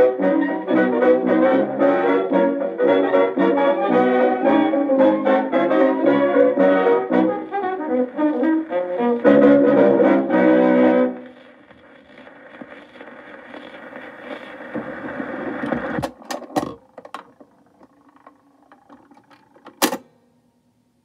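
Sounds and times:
record surface hiss and crackle: 0.0 - 21.0
tone arm mechanism clicks: 16.0 - 20.1.

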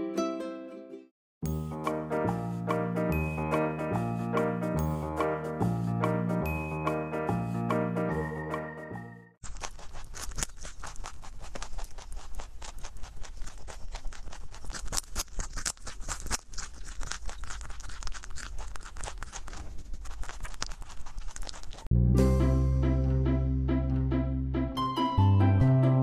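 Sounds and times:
rabbit chewing carrot crunching: 9.4 - 21.9.

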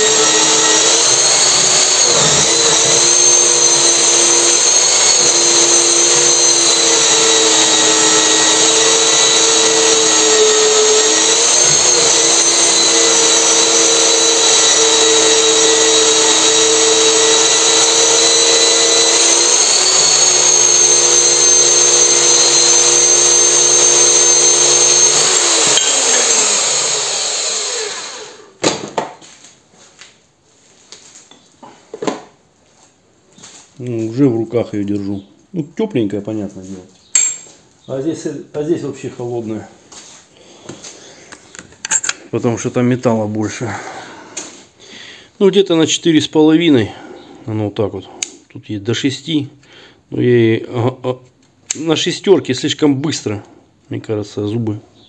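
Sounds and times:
band saw cutting steel: 0.0 - 28.5.

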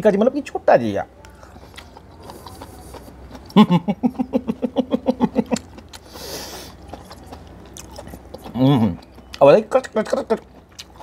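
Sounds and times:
chewing clicks: 6.8 - 11.0.

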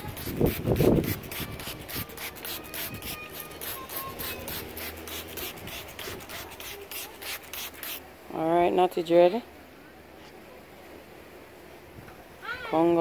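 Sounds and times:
spray bottle misting hisses: 0.0 - 8.0.

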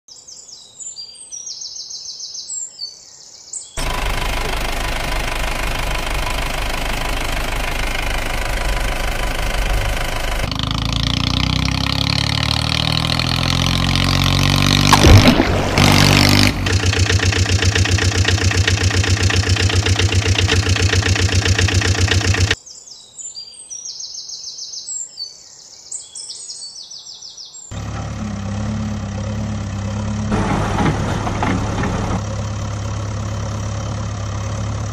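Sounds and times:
birds chirping: 0.1 - 30.3
fast idling chug: 3.8 - 10.6, 14.9 - 22.6
engine running steadily: 3.8 - 22.6, 27.7 - 34.9
sudden loud engine sound: 3.8 - 22.6, 27.7 - 34.9.

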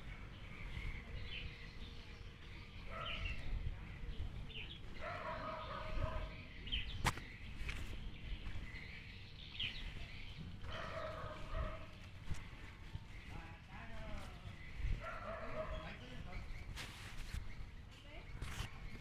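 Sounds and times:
bird chirps: 0.0 - 19.0
distant farm animal calls: 9.9 - 16.5.

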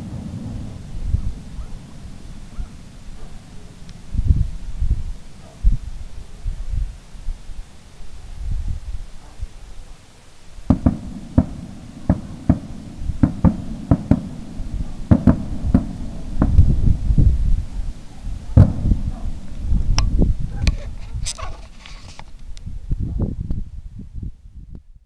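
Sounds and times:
distant fireworks bangs: 0.0 - 5.9, 10.6 - 21.9
low rumble: 0.0 - 9.1, 10.7 - 21.2.

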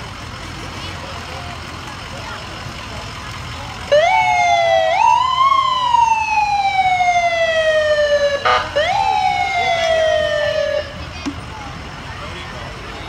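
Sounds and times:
ambulance siren wailing: 3.8 - 11.1
short siren blast: 4.0 - 10.9.

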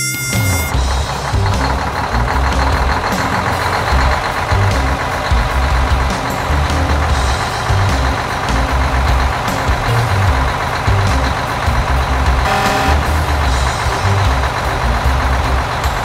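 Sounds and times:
short higher tone: 0.0 - 0.8
background music: 0.0 - 16.0
low engine rumble: 0.1 - 16.0.

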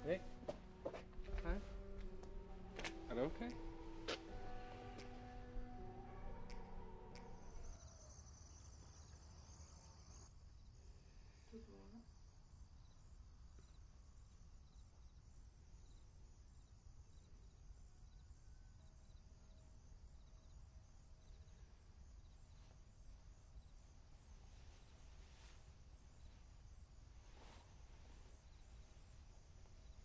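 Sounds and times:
soft pitched sound: 0.0 - 8.4.

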